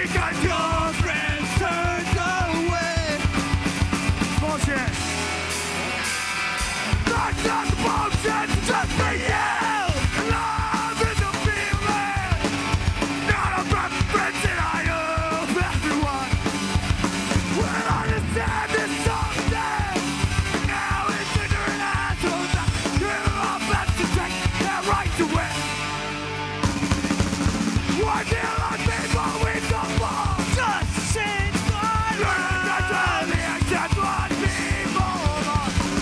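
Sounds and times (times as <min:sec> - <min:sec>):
yelled vocals: 0:00.0 - 0:03.4, 0:06.6 - 0:25.8, 0:27.7 - 0:36.0
bass guitar: 0:00.0 - 0:36.0
distorted electric guitars: 0:00.0 - 0:36.0
pounding drum kit: 0:00.0 - 0:36.0.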